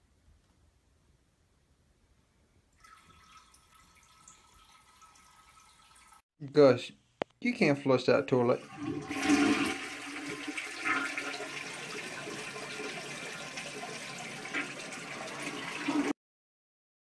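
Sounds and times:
toilet flushing: 0:02.8 - 0:06.2, 0:08.5 - 0:16.2.

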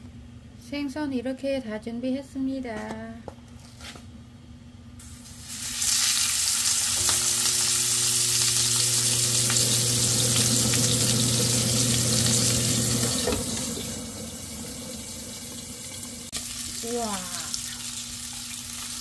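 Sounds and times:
fish sizzling in hot oil: 0:05.0 - 0:19.0.

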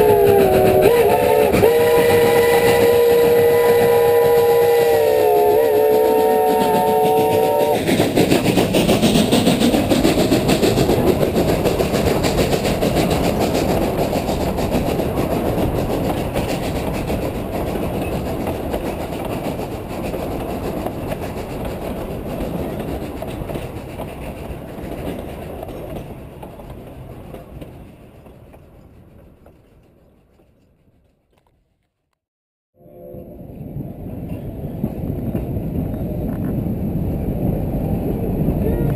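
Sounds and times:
model train chime whistle: 0:00.0 - 0:07.8
wheels clattering over rail joints: 0:06.2 - 0:31.6.

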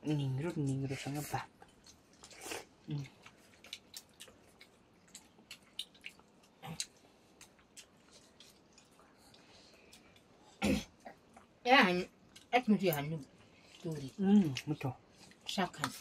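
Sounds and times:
chewing sounds: 0:00.0 - 0:16.0.

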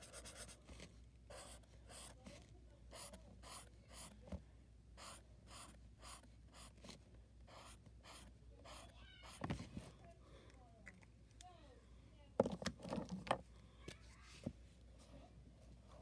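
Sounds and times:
marker rubbing on paper: 0:00.0 - 0:00.7, 0:01.3 - 0:04.2, 0:05.0 - 0:09.5.

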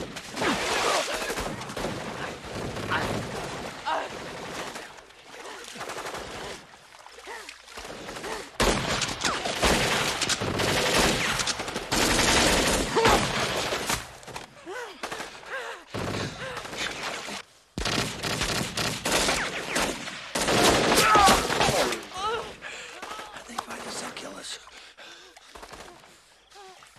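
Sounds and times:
rapid gunfire volleys: 0:00.0 - 0:06.7, 0:07.8 - 0:14.3, 0:15.0 - 0:22.0.

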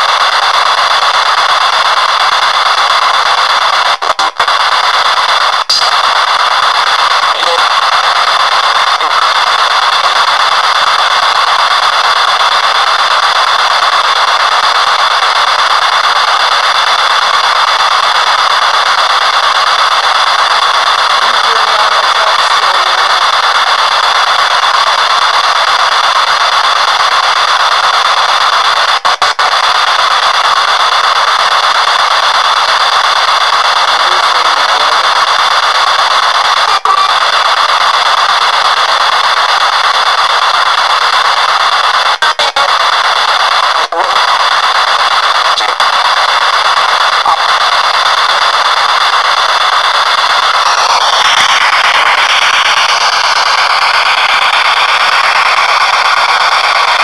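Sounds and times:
radio static hiss: 0:00.0 - 0:57.0.

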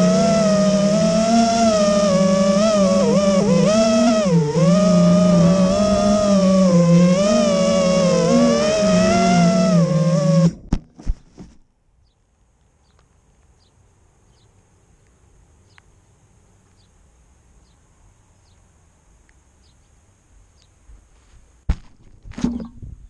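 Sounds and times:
rustling and knocking in grass: 0:10.5 - 0:11.7, 0:21.1 - 0:22.9
soft regular ticks: 0:14.4 - 0:15.9.

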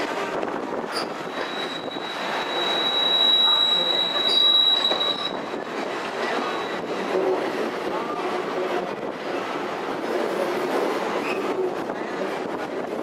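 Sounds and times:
rumble of rolling train cars: 0:00.0 - 0:13.0
train wheels squealing on rails: 0:00.9 - 0:07.4, 0:10.2 - 0:11.8.

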